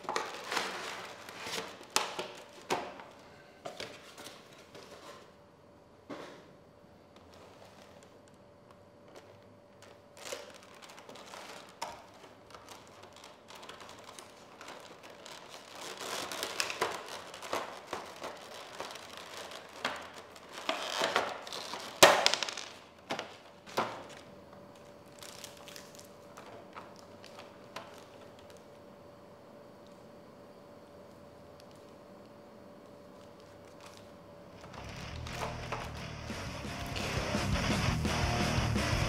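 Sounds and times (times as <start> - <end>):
plastic bag crinkling: 0.0 - 3.2, 9.1 - 28.6
faint steady hum: 0.0 - 39.0
plastic blister tray rustling and clicking: 9.2 - 24.2.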